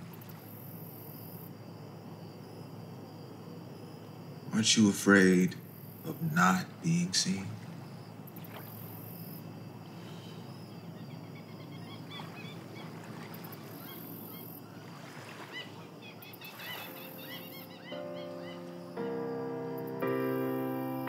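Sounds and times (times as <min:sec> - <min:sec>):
low background hum: 0:00.0 - 0:16.4
soft piano music: 0:16.4 - 0:21.0.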